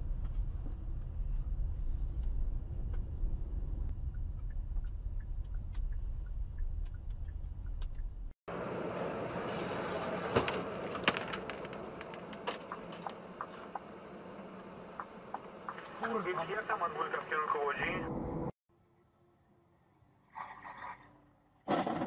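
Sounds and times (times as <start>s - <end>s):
rushing road and wind noise: 0.0s - 16.2s
car engine and road rumble: 0.0s - 18.6s.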